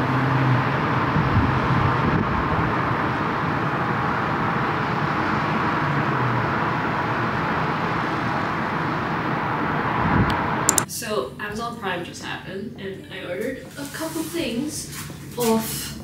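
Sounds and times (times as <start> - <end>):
distant city traffic: 0.0 - 10.9.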